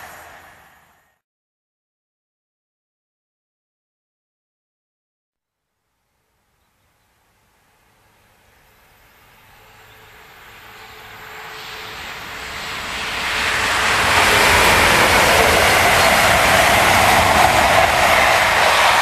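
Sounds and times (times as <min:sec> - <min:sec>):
diesel train passing at speed: 0:00.0 - 0:01.2, 0:06.8 - 0:19.0.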